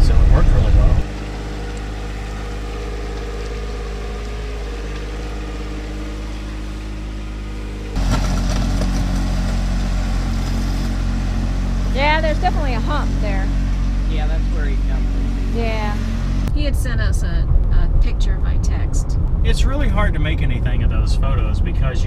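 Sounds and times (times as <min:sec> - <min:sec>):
diesel tractor engine running: 0:00.0 - 0:21.4
blade dragging over gravel: 0:07.9 - 0:11.6.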